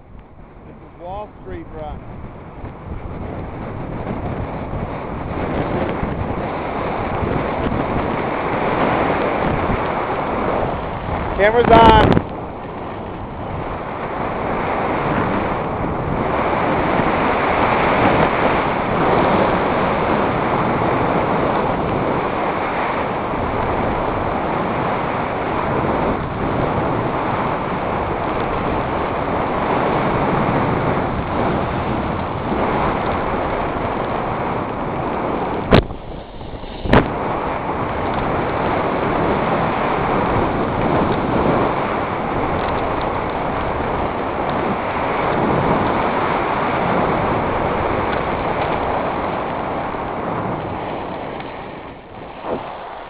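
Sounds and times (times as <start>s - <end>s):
wind rushing over microphone: 0.0s - 53.0s
skis sliding on snow: 12.8s - 53.0s.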